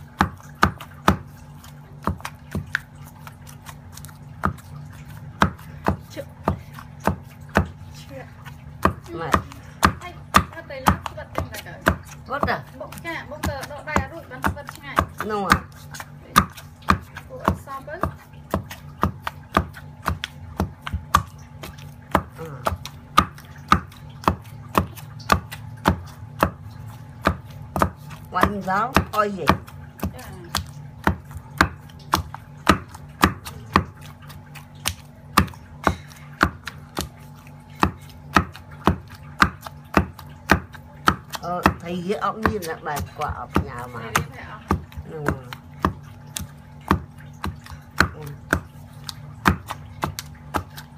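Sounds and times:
pestle pounding in stone mortar: 0.0s - 50.9s.

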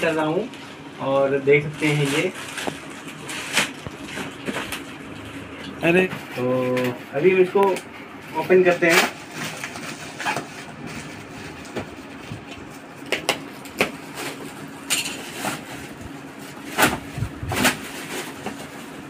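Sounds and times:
plastic packaging crinkling: 1.5s - 5.2s, 8.4s - 19.0s.

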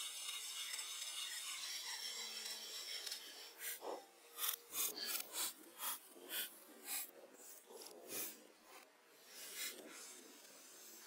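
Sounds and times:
hand saw cutting log: 0.0s - 7.1s.

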